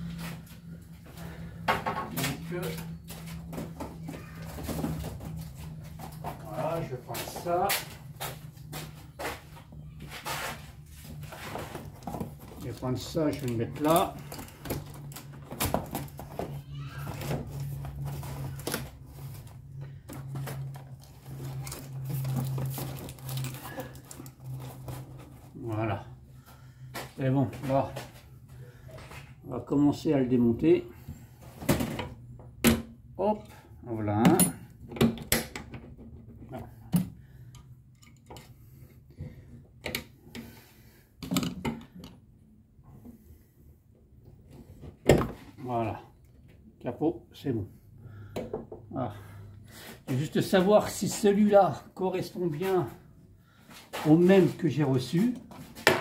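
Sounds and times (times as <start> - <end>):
steady low hum: 0.0 - 54.8.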